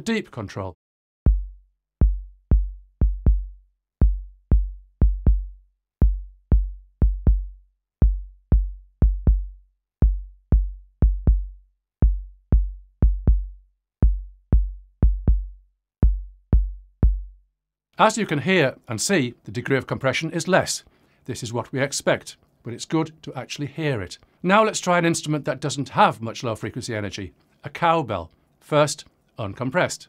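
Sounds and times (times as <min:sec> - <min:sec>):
electronic kick drum: 0:01.3 - 0:17.4.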